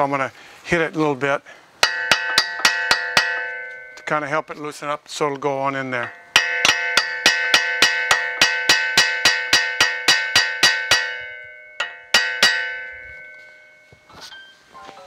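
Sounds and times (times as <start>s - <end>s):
hammer tapping metal with ringing: 1.8s - 4.7s, 5.7s - 14.6s.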